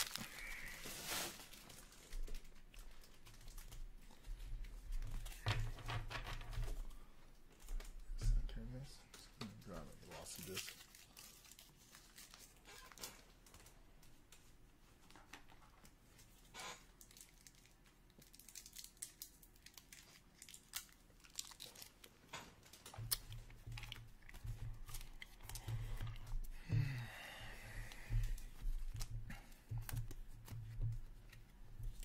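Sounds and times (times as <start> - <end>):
card wrappers crinkling: 0.0 - 4.3, 9.6 - 14.4, 15.0 - 26.5.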